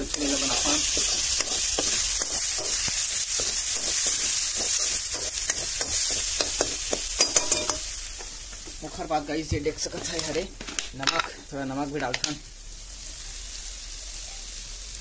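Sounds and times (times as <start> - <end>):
masala sizzling in oil: 0.0 - 15.0.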